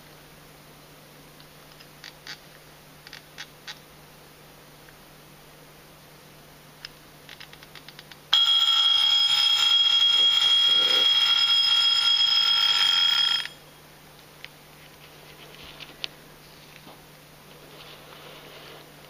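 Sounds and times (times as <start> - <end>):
alarm clock ringing: 8.4 - 13.6.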